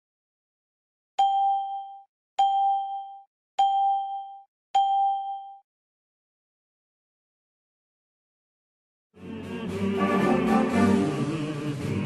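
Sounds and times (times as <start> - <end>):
bell-like ding: 1.2 - 5.6.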